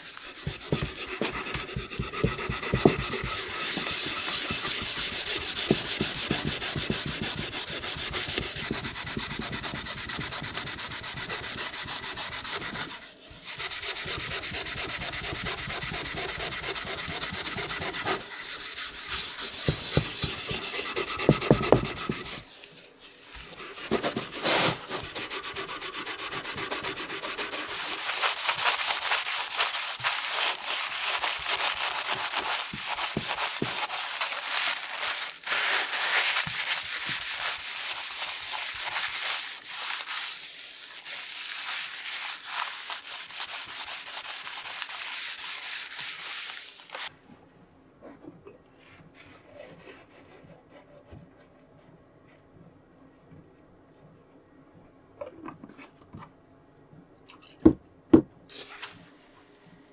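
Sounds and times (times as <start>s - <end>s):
cloth wiping wood: 0.0s - 22.5s, 23.1s - 47.1s
steel wool scrubbing wood: 0.0s - 47.1s.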